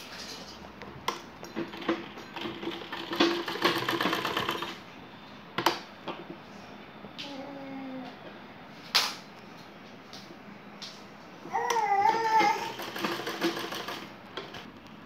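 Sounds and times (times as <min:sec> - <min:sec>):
sewing machine stitching: 0:01.6 - 0:04.8, 0:12.1 - 0:14.7.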